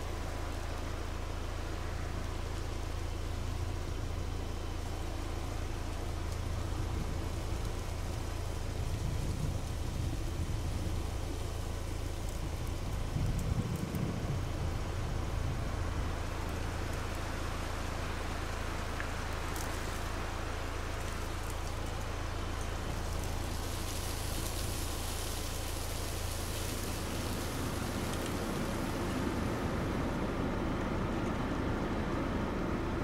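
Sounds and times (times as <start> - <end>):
constant low rumble: 0.0 - 33.0
rain-like hiss: 0.0 - 33.0
faint ticks: 18.4 - 20.3, 28.0 - 28.5.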